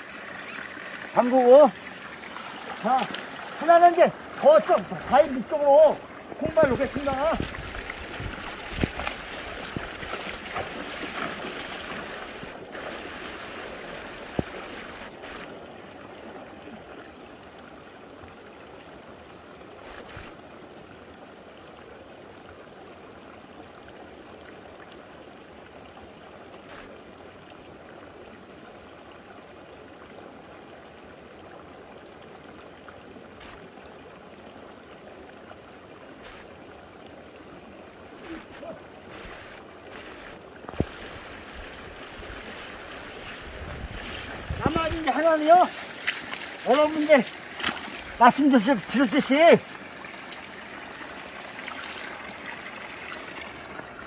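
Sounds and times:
person moving through water: 0.0s - 21.2s, 32.4s - 54.0s
stream running over stones: 0.0s - 54.0s.

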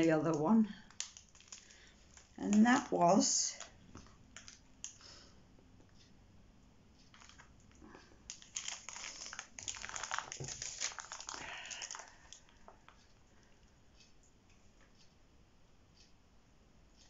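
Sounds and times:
plastic packaging crinkling: 0.0s - 5.1s, 7.1s - 13.0s.

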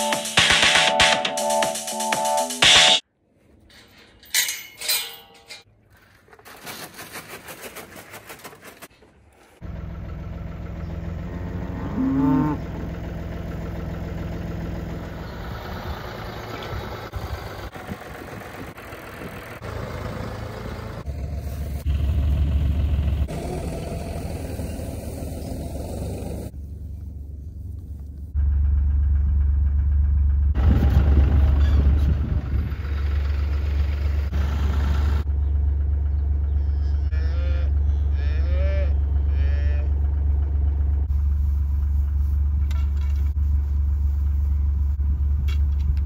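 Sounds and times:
short scattered noises: 3.6s - 9.6s
tractor diesel engine running: 7.8s - 46.0s
cow mooing: 11.2s - 12.8s, 36.6s - 40.0s.

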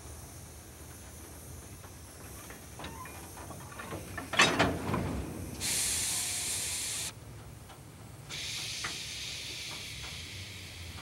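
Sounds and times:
steam locomotive hissing: 5.4s - 7.1s, 8.3s - 11.0s.

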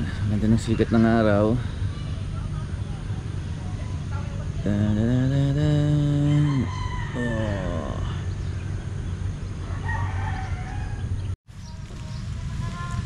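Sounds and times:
rooster crowing: 6.0s - 8.2s, 9.6s - 11.2s.

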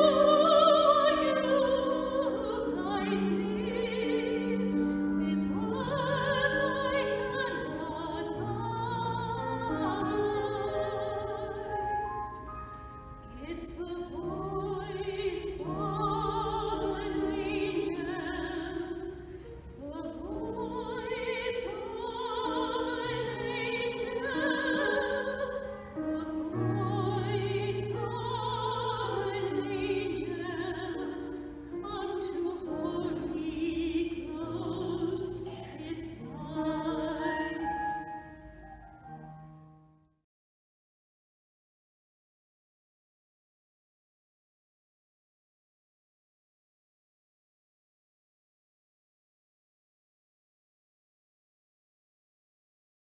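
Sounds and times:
operatic singing with vibrato: 0.0s - 11.9s, 13.2s - 38.2s.

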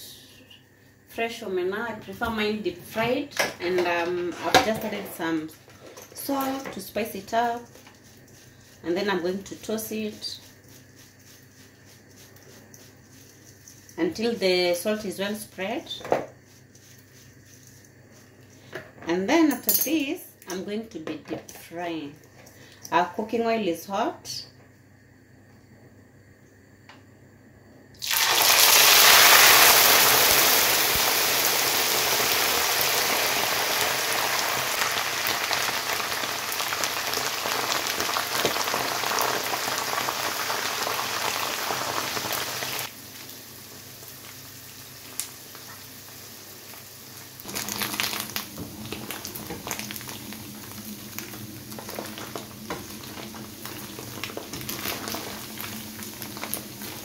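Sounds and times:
fish sizzling in hot oil: 28.0s - 57.0s.

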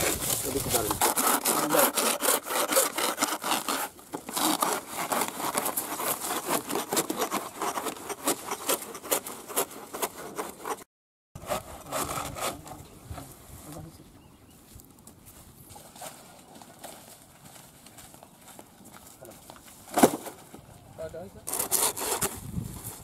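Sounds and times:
hand saw cutting trunk: 0.0s - 12.8s, 21.5s - 22.5s.

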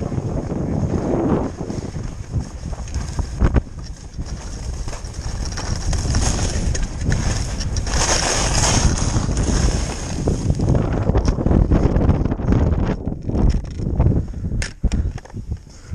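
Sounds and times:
skis scraping on packed snow: 0.0s - 11.9s
wind buffeting microphone: 0.0s - 15.9s.

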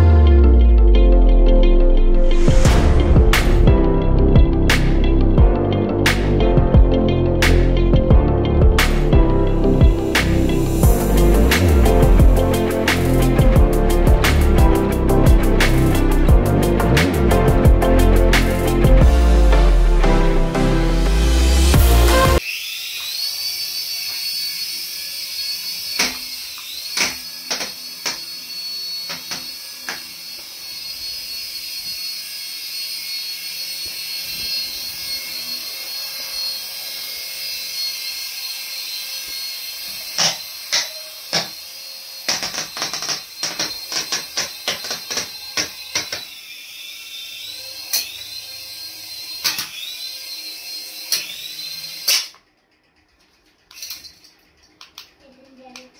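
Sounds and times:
toy helicopter rotor whining: 22.4s - 55.9s.

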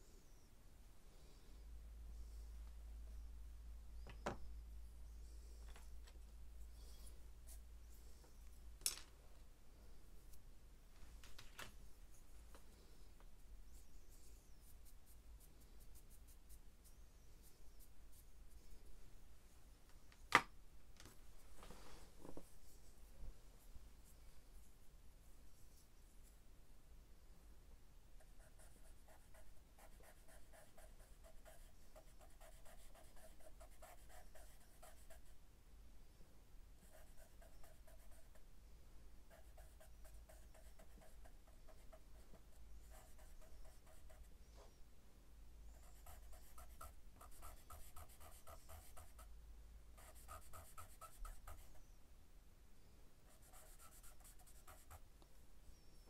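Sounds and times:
pencil scratching on paper: 28.2s - 35.3s, 36.8s - 38.4s, 39.3s - 44.3s, 45.8s - 49.3s, 50.0s - 51.8s, 53.3s - 55.0s.

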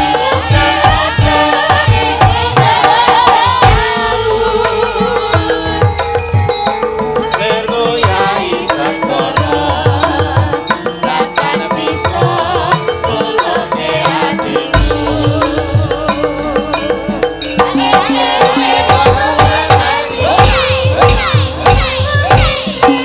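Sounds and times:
amplified singing: 0.0s - 23.0s
drumming: 0.0s - 23.0s
gamelan music: 0.0s - 23.0s.

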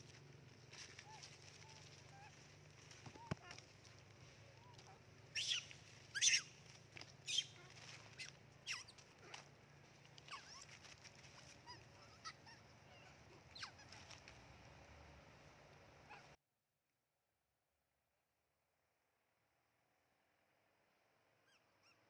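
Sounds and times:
monkeys squealing: 0.8s - 3.8s, 4.6s - 6.6s, 7.2s - 9.5s, 10.1s - 14.3s, 16.1s - 16.3s.

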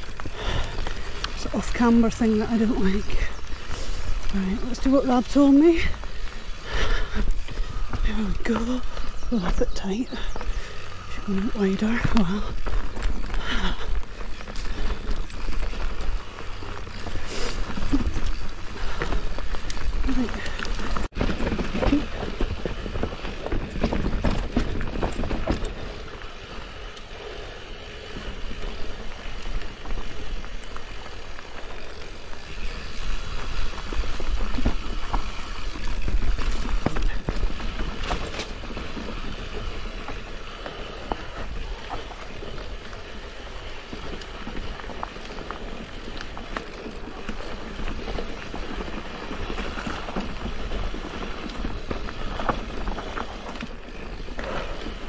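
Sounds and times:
bike tyres rolling over stones: 0.0s - 55.0s
bike knocks and rattles: 11.6s - 26.8s, 32.4s - 55.0s.

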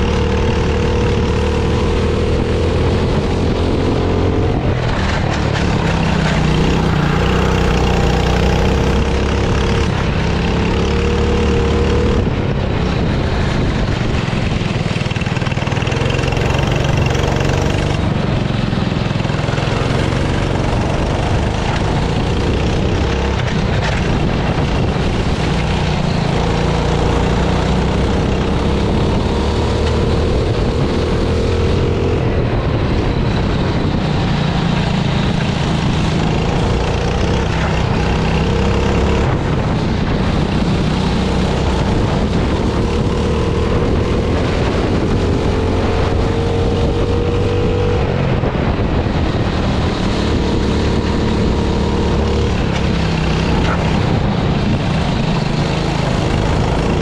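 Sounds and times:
kart engine accelerating: 0.0s - 57.0s
wind and spray rushing: 0.0s - 57.0s.

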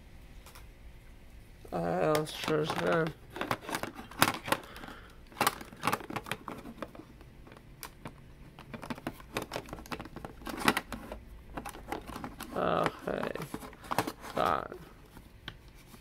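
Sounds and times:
cards rustling: 1.8s - 16.0s.

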